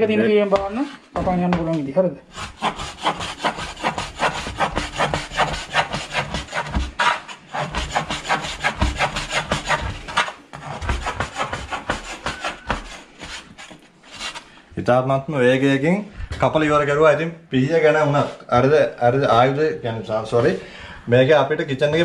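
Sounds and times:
knife chopping on cutting board: 0:02.4 - 0:13.8.

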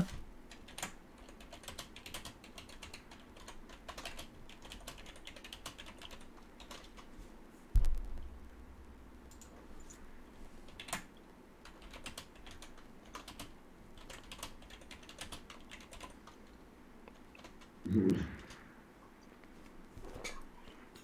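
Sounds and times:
computer keyboard clicking: 0:00.5 - 0:07.0, 0:10.7 - 0:16.4, 0:17.1 - 0:17.6.

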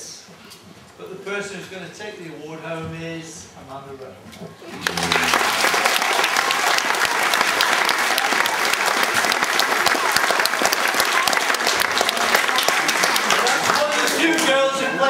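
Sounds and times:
children applauding: 0:04.7 - 0:15.0.

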